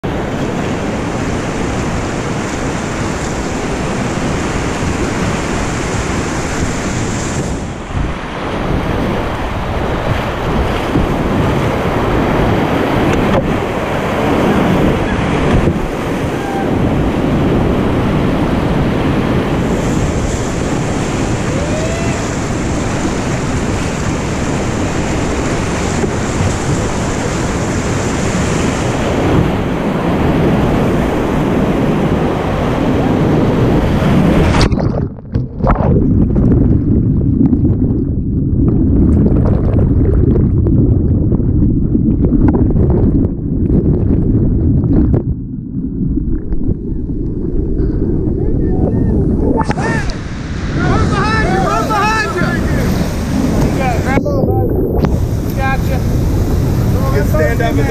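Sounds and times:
whitewater rapids rushing: 8.5 - 34.7, 49.1 - 57.9.

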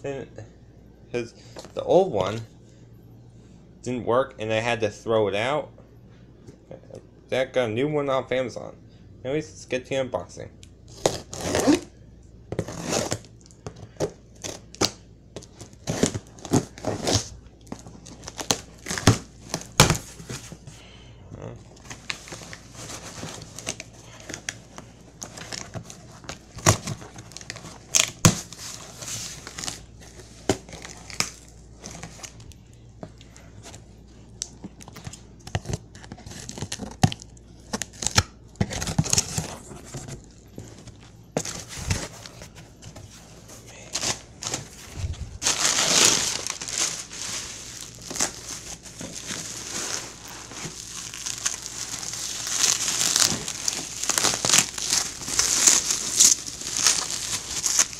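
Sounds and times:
packing tape ripping: 10.9 - 11.9, 12.6 - 13.3, 45.4 - 57.9
packing material crinkling: 14.4 - 20.7, 21.7 - 32.6, 34.4 - 57.9.

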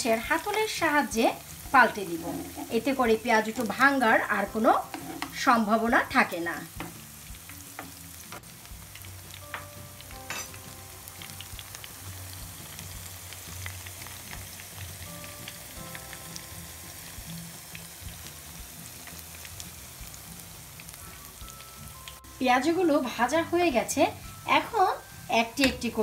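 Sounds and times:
fritters deep-frying in oil: 0.0 - 26.0.

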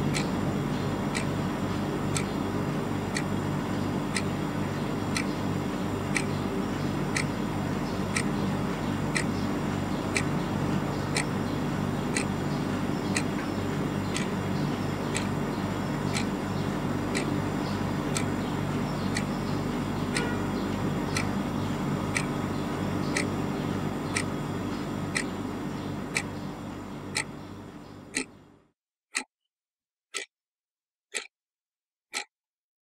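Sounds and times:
clock ticking: 0.0 - 0.3, 1.1 - 1.4, 3.1 - 3.4, 4.1 - 4.3, 6.0 - 6.4, 7.1 - 7.4, 8.1 - 8.4, 9.0 - 9.3, 10.1 - 11.3, 12.1 - 13.5, 14.1 - 14.4, 15.1 - 15.4, 16.0 - 18.5, 19.1 - 19.4, 20.1 - 20.4, 22.1 - 22.5, 23.1 - 23.4, 24.1 - 24.4, 25.1 - 25.4, 27.1 - 27.4, 28.1 - 28.3, 30.1 - 30.3, 31.1 - 31.3, 32.1 - 32.3
low room hum: 0.0 - 28.7.

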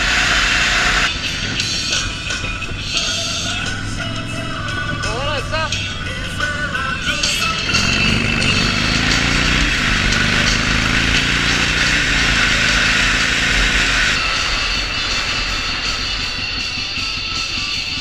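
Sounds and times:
motorcycle engine accelerating: 0.0 - 18.0.

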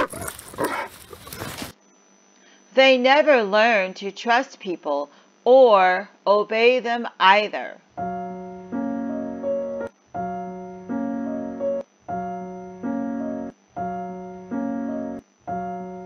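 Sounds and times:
looped keyboard chords: 8.0 - 16.0.

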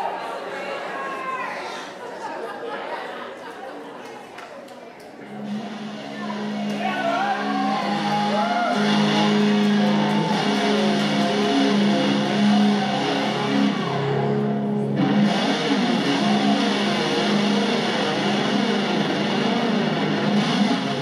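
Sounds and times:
distorted electric guitar: 5.3 - 21.0.

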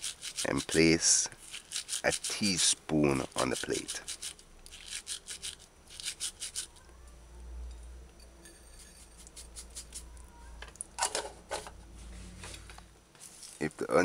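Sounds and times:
dry herbs crackly rustle: 0.0 - 4.3.

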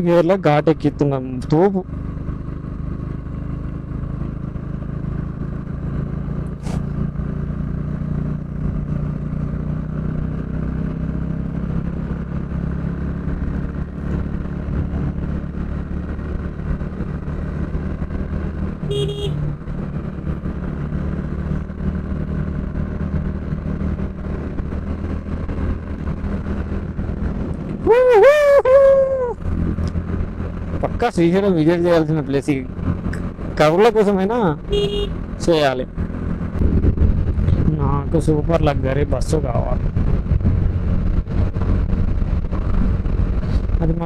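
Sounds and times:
short horn toot: 18.9 - 19.4, 34.7 - 35.2
motorcycle engine under load: 32.6 - 38.5.

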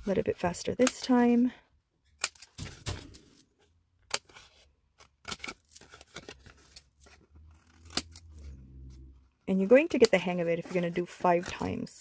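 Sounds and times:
scissors cutting cardstock: 5.0 - 8.5, 9.7 - 11.9
paper rustling: 9.7 - 11.9.

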